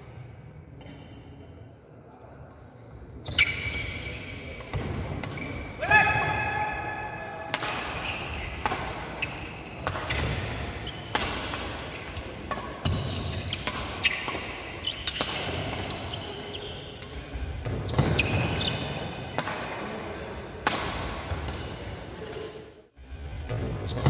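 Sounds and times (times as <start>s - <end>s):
shoes squeaking: 3.2s - 4.6s, 7.9s - 11.2s, 11.8s - 16.9s, 17.8s - 19.4s
racket hitting shuttlecock: 4.4s - 20.0s, 20.6s - 22.6s.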